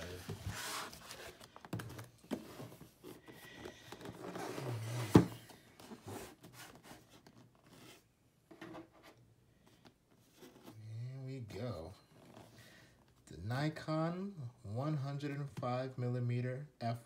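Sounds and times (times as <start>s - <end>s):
cardboard box handled on wooden table: 0.0s - 9.2s.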